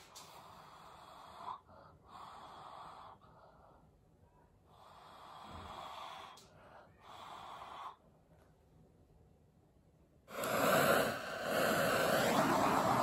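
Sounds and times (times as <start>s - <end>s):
heat gun air rush and whine: 10.3s - 13.0s
person blowing onto paint: 10.3s - 13.0s.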